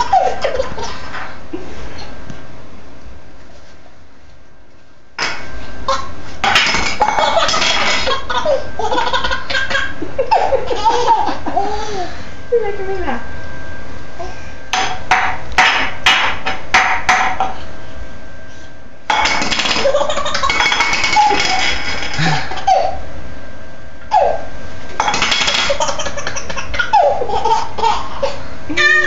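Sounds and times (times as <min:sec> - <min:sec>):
baby laughing: 0:00.0 - 0:01.1, 0:07.1 - 0:12.1, 0:25.6 - 0:28.4.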